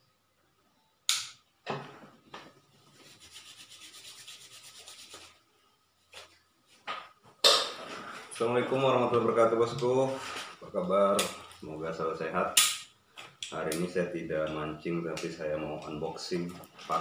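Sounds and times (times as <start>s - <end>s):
hands rubbing together: 2.8s - 5.4s.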